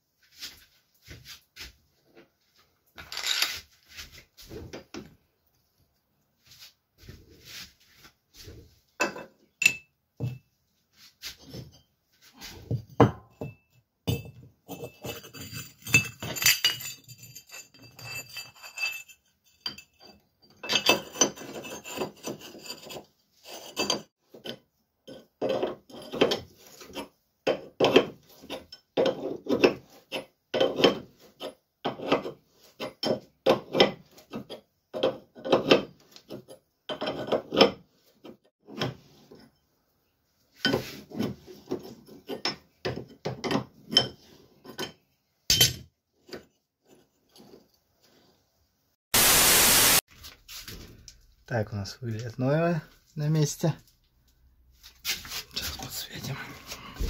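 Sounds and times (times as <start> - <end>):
metal parts clinking and scraping: 3.0 - 3.8, 14.7 - 24.1.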